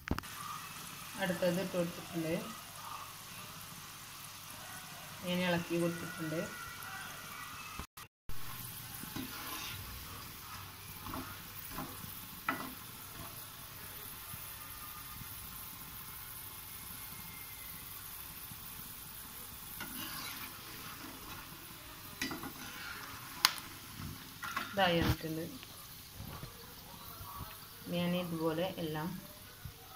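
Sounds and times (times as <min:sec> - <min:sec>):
oil sizzling: 0:00.0 - 0:29.9
metal skimmer scraping a pan: 0:09.0 - 0:10.2, 0:19.7 - 0:25.3.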